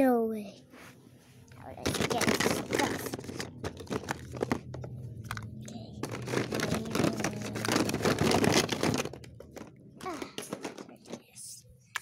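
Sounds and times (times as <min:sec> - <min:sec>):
plastic dishes clicking and rustling: 0:01.8 - 0:11.3.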